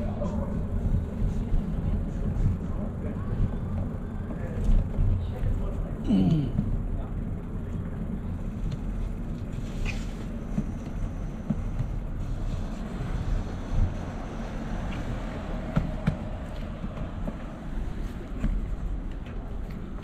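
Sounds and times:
bicycle rolling noise: 0.0 - 6.0, 6.6 - 20.0
wind rumble: 6.6 - 20.0.

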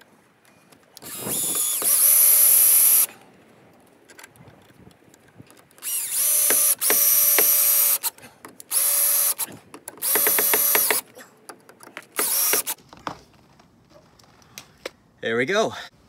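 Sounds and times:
cordless drill whining: 1.0 - 3.1, 5.8 - 8.1, 8.7 - 11.0, 12.2 - 12.8.

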